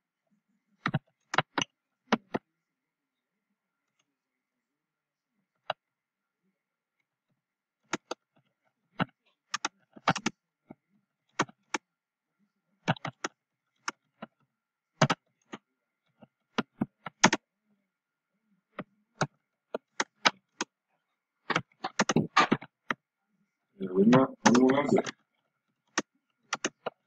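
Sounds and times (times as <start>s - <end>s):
keyboard typing clicks: 9.0s - 10.3s, 12.8s - 14.3s, 15.0s - 15.6s, 16.6s - 17.4s, 21.5s - 23.0s, 25.9s - 27.0s.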